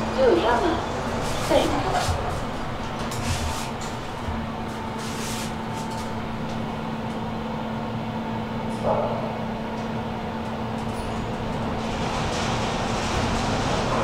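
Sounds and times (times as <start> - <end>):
elevator mechanical hum: 0.0 - 14.0.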